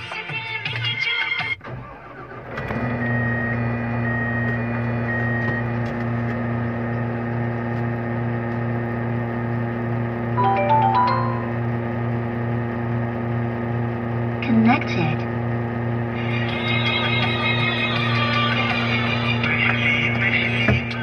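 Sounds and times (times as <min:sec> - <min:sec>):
high two-note tone: 0:10.4 - 0:12.0.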